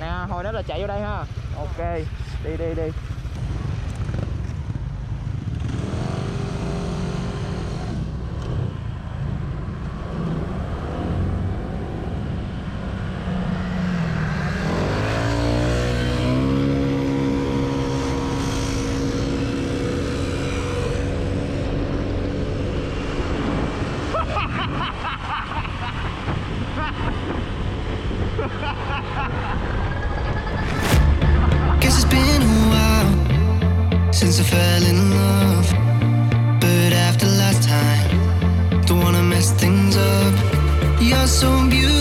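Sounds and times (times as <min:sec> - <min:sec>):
scooter engine: 0:00.9 - 0:24.3
wind rumble on microphone: 0:21.1 - 0:31.1.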